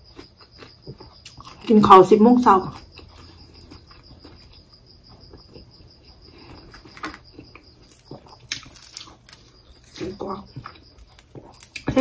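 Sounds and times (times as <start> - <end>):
sausage tearing with crackles: 7.8 - 12.0.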